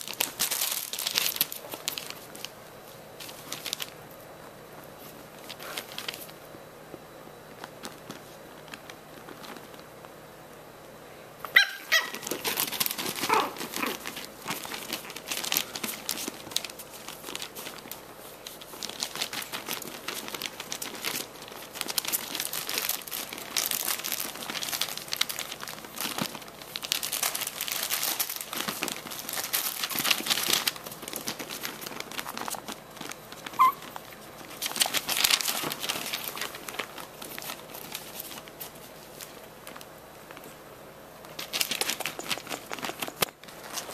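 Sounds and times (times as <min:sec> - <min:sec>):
fabric and newspaper rustling: 0:00.0 - 0:10.2, 0:11.5 - 0:40.6, 0:41.2 - 0:43.9
dog yipping: 0:11.5 - 0:12.3, 0:13.2 - 0:14.0, 0:33.5 - 0:33.9.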